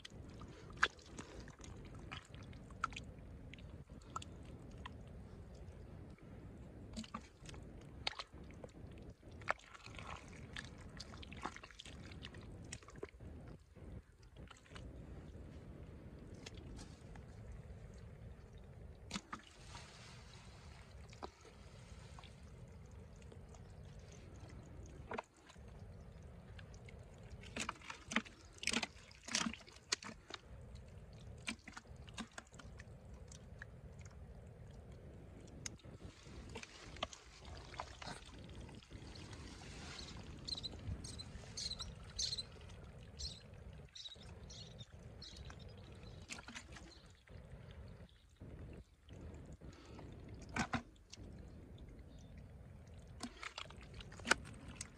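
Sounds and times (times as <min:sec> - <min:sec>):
hands squelching through mud: 0:09.4 - 0:13.1, 0:35.6 - 0:41.5.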